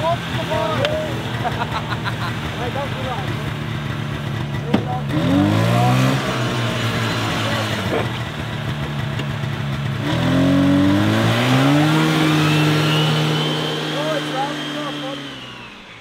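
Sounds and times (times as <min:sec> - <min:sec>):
snowmobile engine running: 0:00.0 - 0:16.0.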